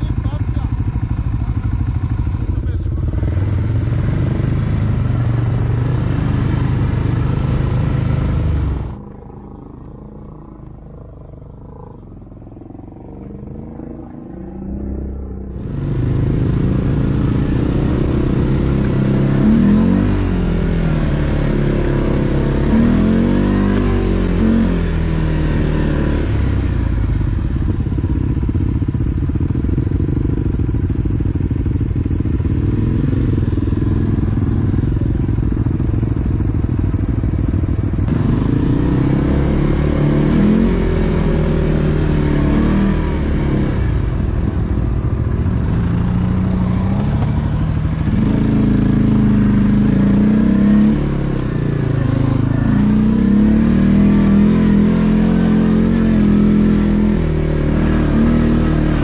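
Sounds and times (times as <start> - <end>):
atv engines revving: 0.0 - 59.0.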